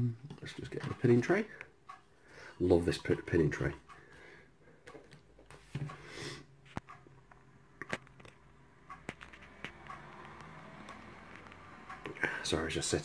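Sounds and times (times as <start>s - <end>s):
light clicks and taps: 0.2s - 2.1s, 4.8s - 6.1s.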